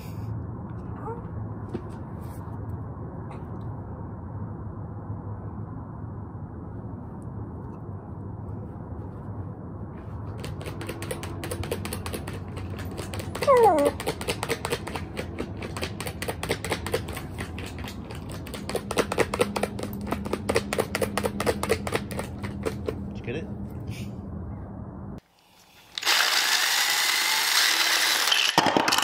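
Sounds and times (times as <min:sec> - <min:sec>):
dog claws tapping plastic cone: 0:10.3 - 0:23.0
dog whining: 0:13.2 - 0:14.2.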